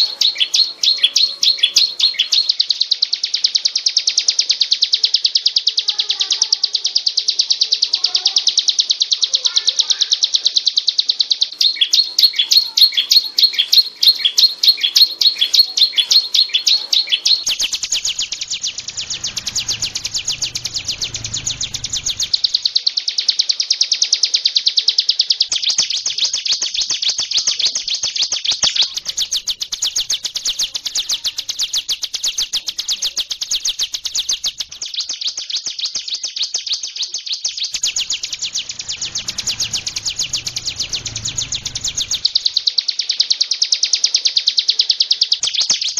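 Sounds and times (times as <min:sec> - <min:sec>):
bird singing fast high notes: 0:00.0 - 0:02.6, 0:11.5 - 0:22.7, 0:37.7 - 0:42.6
low rumble: 0:17.6 - 0:22.6, 0:37.8 - 0:42.6.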